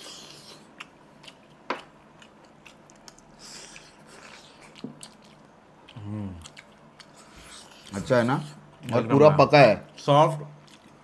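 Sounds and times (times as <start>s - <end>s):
chewing and biting food: 0.0s - 9.1s, 9.8s - 11.0s.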